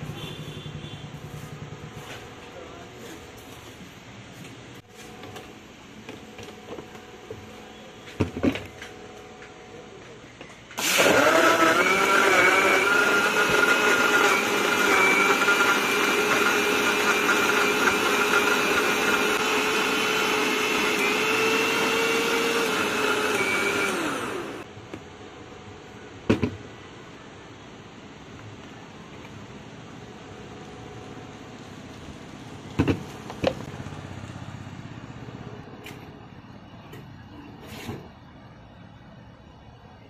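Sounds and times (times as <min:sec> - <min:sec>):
electric blender whining: 0:10.8 - 0:24.7.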